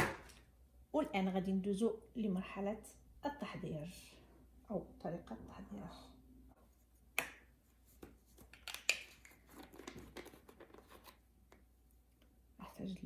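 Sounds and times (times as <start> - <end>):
plastic jar cap clicking: 8.4 - 9.4.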